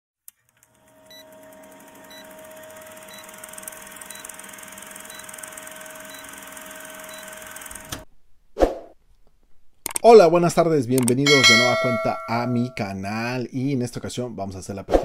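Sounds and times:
film projector whirring: 0:00.3 - 0:08.0
low hum: 0:11.3 - 0:12.8.

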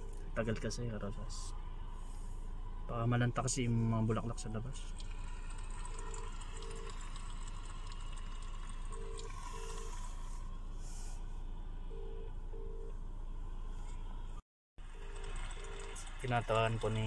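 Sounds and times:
low car cabin hum: 0:00.0 - 0:07.9, 0:08.7 - 0:14.4
telephone ringback tone: 0:06.0 - 0:06.9, 0:08.9 - 0:10.2, 0:11.9 - 0:12.9, 0:15.0 - 0:16.0.

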